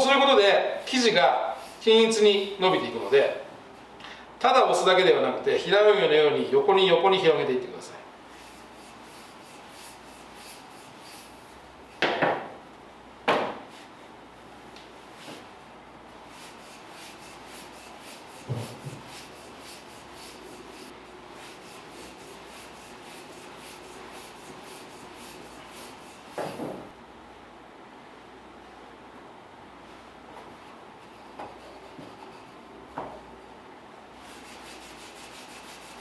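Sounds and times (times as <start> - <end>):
rolling pin rubbing dough: 8.4 - 11.6, 16.3 - 26.8, 31.0 - 32.7, 34.2 - 36.0
sharp knocks: 12.0 - 12.5, 13.3 - 13.6.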